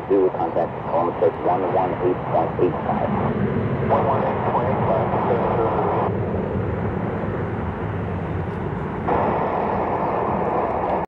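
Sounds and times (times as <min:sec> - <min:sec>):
jet engines roaring: 0:00.0 - 0:11.0.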